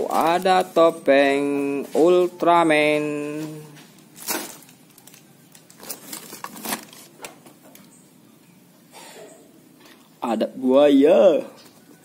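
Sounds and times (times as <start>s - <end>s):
plastic wrapping crinkling: 0.0s - 0.9s, 3.1s - 7.9s.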